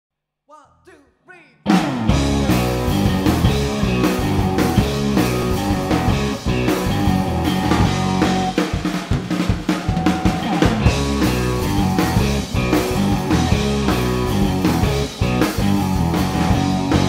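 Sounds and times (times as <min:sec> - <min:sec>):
sliding guitar notes: 0:01.7 - 0:08.6, 0:09.9 - 0:17.0
blues rock band playing: 0:01.7 - 0:17.0.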